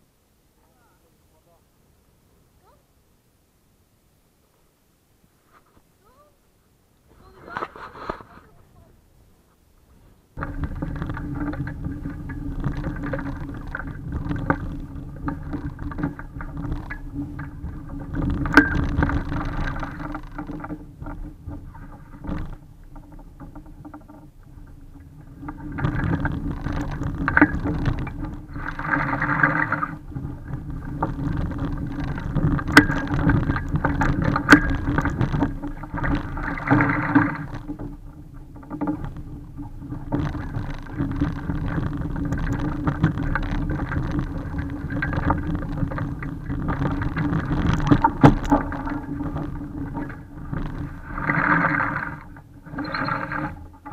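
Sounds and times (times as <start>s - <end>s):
water slopping against hull: 10.4s - 53.9s
water splashing: 24.5s - 53.9s.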